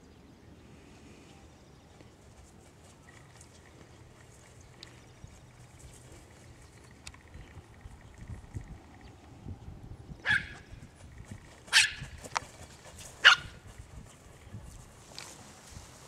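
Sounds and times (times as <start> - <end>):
small dog barking: 10.2 - 10.6, 11.7 - 12.1, 13.2 - 13.6.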